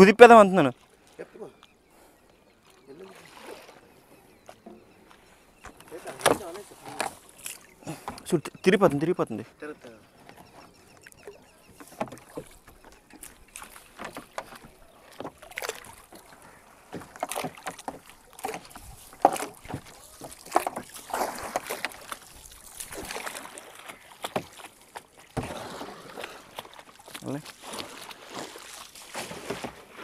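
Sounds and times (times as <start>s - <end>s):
water knocking against hull: 4.4s - 9.2s, 10.2s - 30.0s
pole splashing in water: 13.2s - 30.0s.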